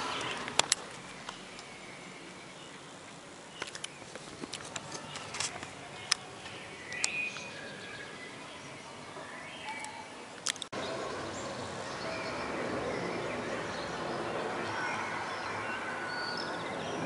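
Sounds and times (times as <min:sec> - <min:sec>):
sharp clicks: 0:00.2 - 0:01.7, 0:03.6 - 0:06.3, 0:06.9 - 0:07.5, 0:09.8 - 0:10.8
faint bird chirps: 0:04.8 - 0:17.0
aircraft overflight: 0:10.8 - 0:16.1.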